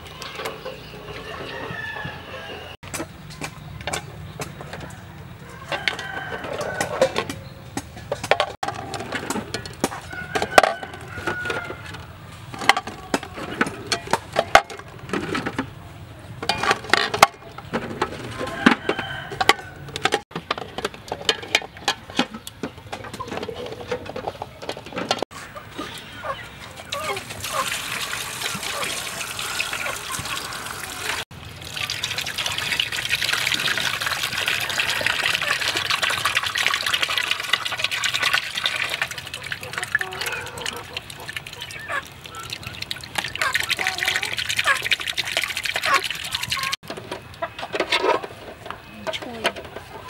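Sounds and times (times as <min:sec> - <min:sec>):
chickens clucking: 0:00.0 - 0:20.2, 0:20.8 - 0:31.2, 0:32.4 - 0:50.0
rooster crowing: 0:01.2 - 0:02.8, 0:05.4 - 0:07.3, 0:10.0 - 0:11.9, 0:18.3 - 0:20.1.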